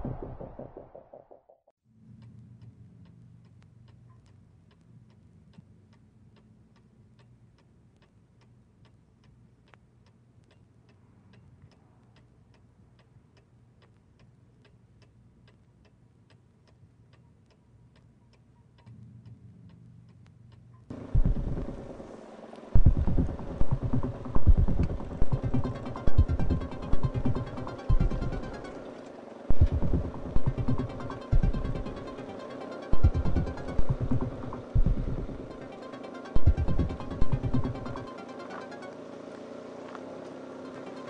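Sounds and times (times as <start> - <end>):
low steady hum: 1.9 - 41.0
clock ticking: 2.2 - 39.0, 40.6 - 41.0
loud music: 22.9 - 28.8.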